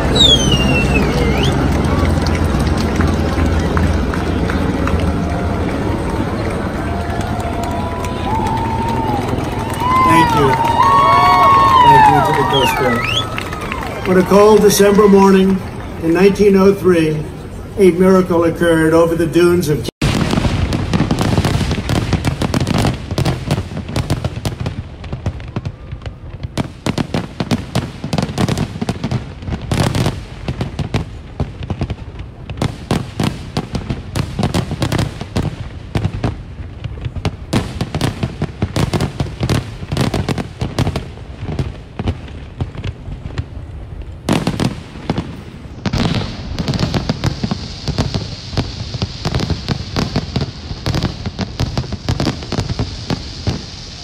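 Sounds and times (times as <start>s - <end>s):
fireworks bangs and crackles: 0.0s - 54.0s
hissing crackle: 20.0s - 54.0s.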